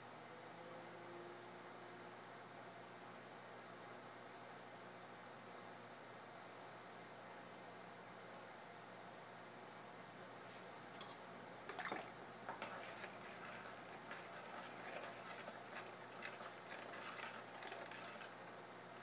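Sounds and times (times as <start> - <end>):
metal tool scraping wet clay: 12.5 - 18.4.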